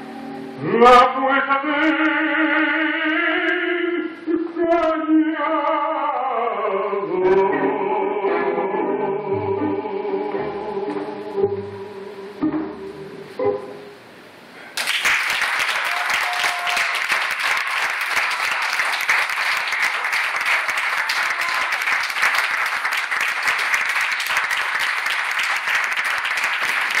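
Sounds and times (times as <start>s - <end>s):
audience applauding: 14.8s - 27.0s.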